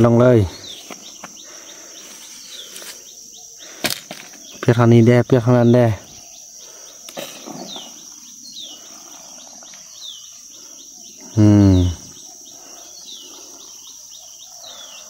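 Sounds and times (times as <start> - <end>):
bird chirping: 0.0 - 15.0
insects droning: 0.0 - 15.0
low voice-like sound: 11.4 - 12.1.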